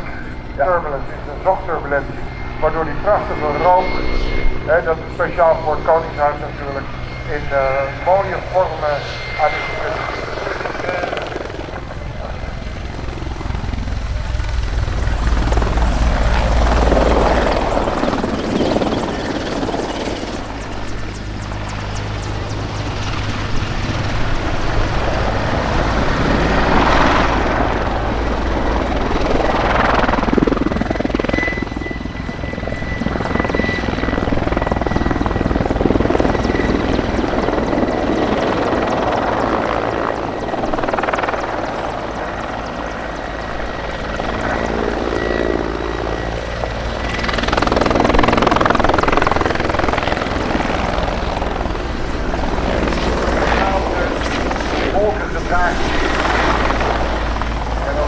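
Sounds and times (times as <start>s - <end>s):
helicopter rotor beat: 0.0s - 58.0s.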